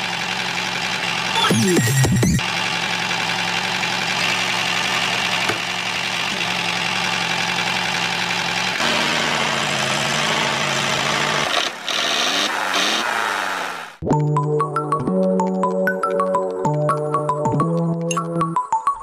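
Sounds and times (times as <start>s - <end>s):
toy tractor engine running: 0.0s - 13.8s.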